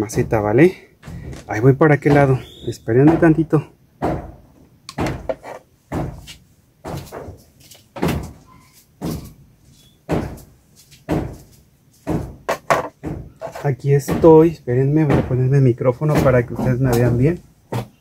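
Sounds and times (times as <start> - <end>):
microphone handling bumps: 0.0 - 8.4.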